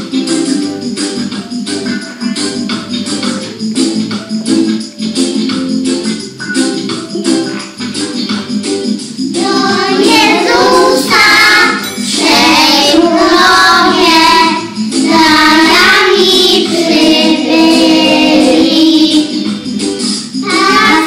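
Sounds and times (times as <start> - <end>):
instrumental backing with percussion: 0.0 - 21.0
children singing: 9.3 - 19.7, 20.4 - 21.0.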